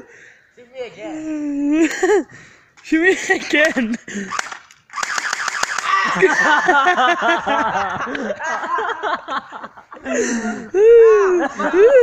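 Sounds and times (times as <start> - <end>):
person vocalizing wordless syllables: 1.0 - 2.0.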